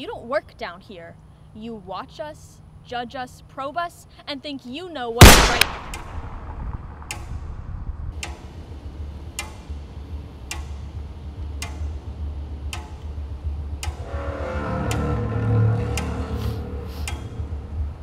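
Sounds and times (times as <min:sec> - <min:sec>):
low hum: 0:05.2 - 0:18.0
slow ticking: 0:05.3 - 0:18.0
sustained music tones: 0:05.8 - 0:18.0.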